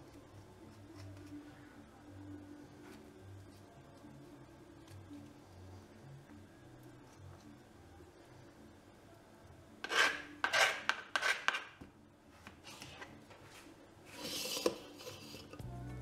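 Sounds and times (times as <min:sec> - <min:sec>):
knife scraping on cutting board: 0:09.8 - 0:11.8, 0:14.1 - 0:15.5.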